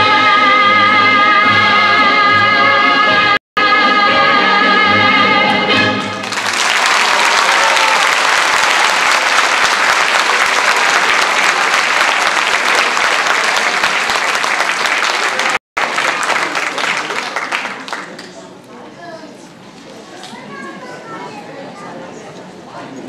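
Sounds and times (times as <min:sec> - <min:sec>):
audience applauding: 0:06.0 - 0:18.4.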